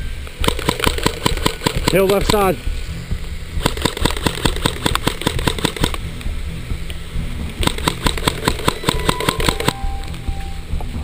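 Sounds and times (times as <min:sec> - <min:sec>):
steady low rumble: 0:00.0 - 0:11.0
rapid sharp taps and clicks: 0:00.4 - 0:02.5, 0:03.6 - 0:06.0, 0:07.6 - 0:09.8.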